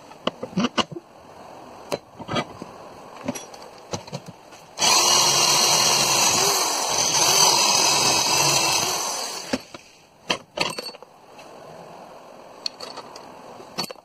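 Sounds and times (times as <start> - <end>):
electric drill whining through metal: 4.8 - 9.7.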